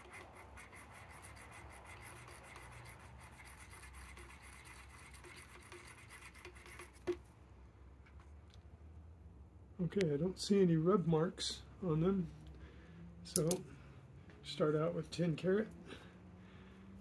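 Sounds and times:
earring scratching on touchstone: 0.0s - 7.2s.

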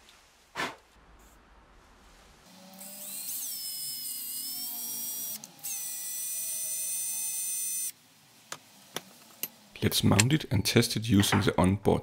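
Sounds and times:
drill motor whine: 2.8s - 7.9s.

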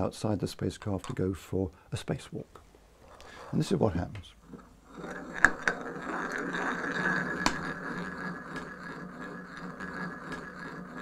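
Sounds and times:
balls rolling in wooden bowl: 3.4s - 11.0s.

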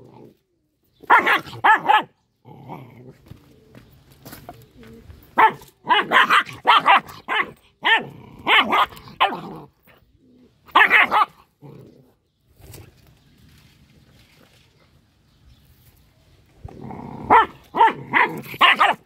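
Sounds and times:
dog barking angrily: 1.0s - 2.2s, 5.4s - 9.7s, 10.7s - 11.8s, 17.1s - 19.0s.

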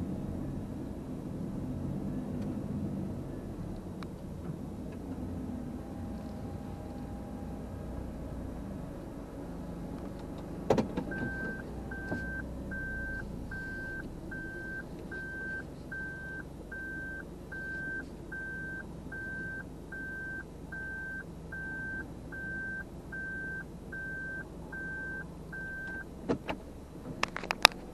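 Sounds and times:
low hum of car running: 0.0s - 27.9s
reversing warning beep: 11.1s - 26.1s.

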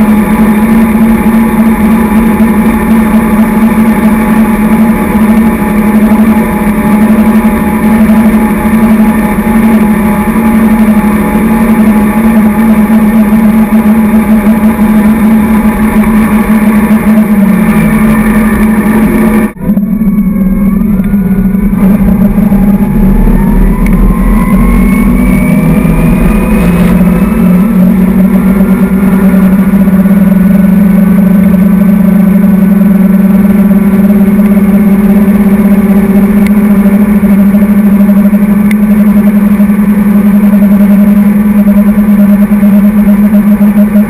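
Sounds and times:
boat engine running: 0.0s - 44.0s.

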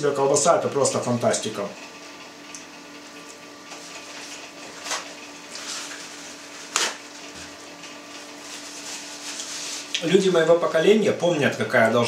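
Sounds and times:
paper towel ripping: 4.8s - 7.2s, 8.4s - 10.0s.

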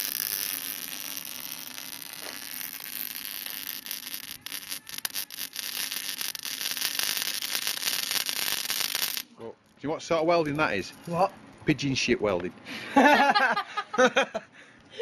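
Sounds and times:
welding arc crackling and hissing: 0.0s - 9.3s.

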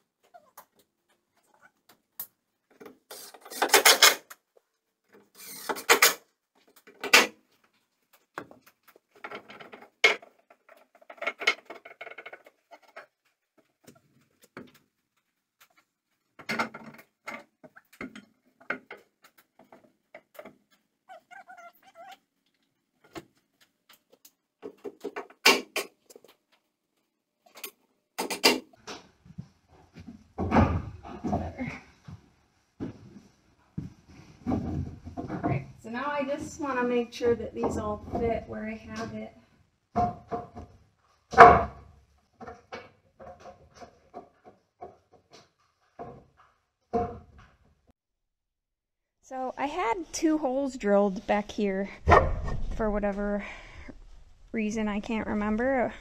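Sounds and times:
wooden boards knocking and rattling: 16.4s - 20.6s, 34.4s - 35.8s, 39.9s - 47.8s.

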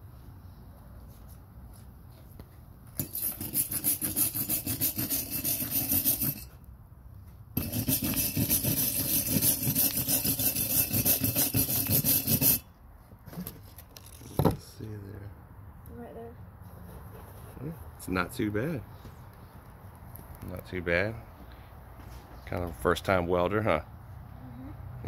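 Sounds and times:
wire brush scrubbing steel: 3.0s - 6.6s, 7.6s - 12.7s.

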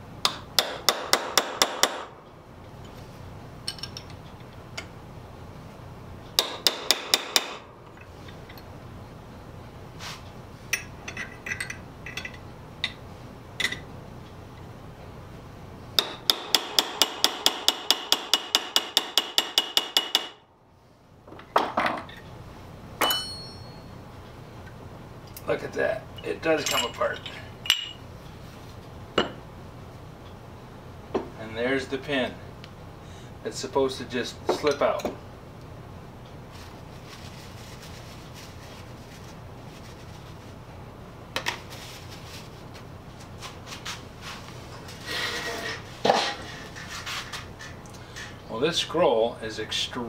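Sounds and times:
steady low hum: 0.0s - 50.0s
ringing metal clink: 23.0s - 24.0s.

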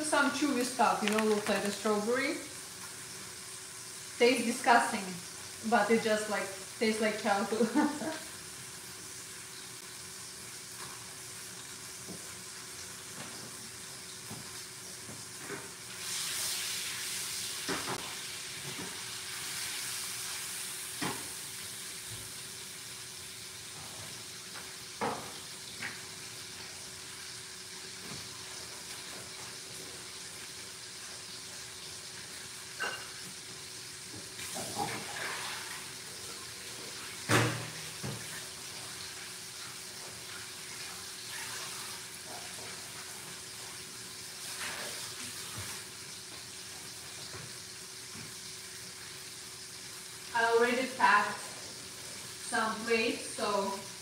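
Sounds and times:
steaks sizzling in a pan: 0.0s - 54.0s
kitchen utensils clinking: 32.8s - 33.2s.

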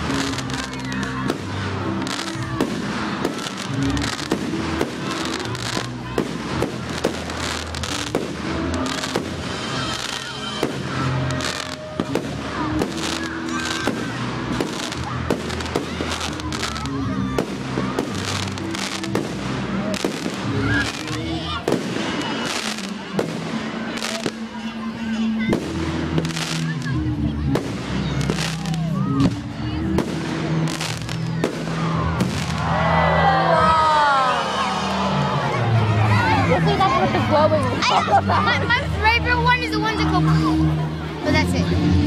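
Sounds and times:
fireworks bursting and crackling: 0.0s - 32.7s
music playing: 0.0s - 42.0s.

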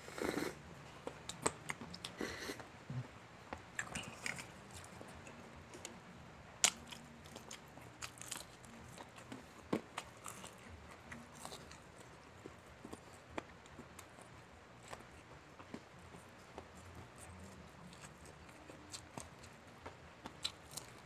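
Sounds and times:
fried chicken crunching: 6.6s - 13.3s, 20.2s - 21.0s.

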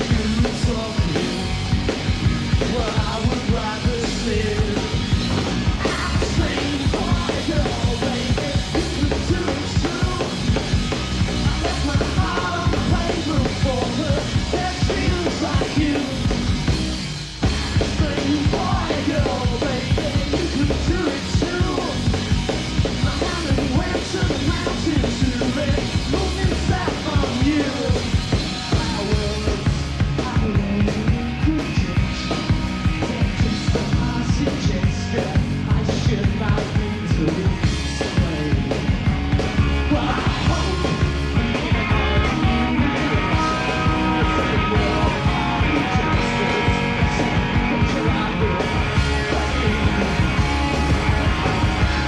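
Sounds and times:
drum kit: 0.0s - 52.0s
rock band playing: 0.0s - 52.0s
person singing: 5.8s - 10.4s, 39.8s - 50.1s.

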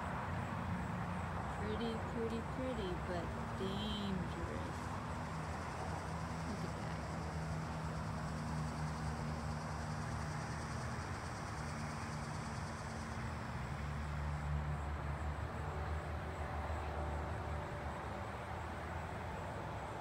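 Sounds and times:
high insect trill: 4.7s - 18.7s.

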